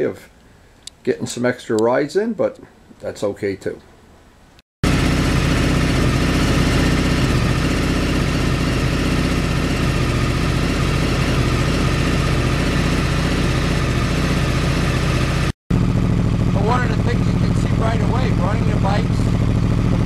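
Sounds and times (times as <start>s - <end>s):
motorcycle engine idling: 4.8s - 20.0s.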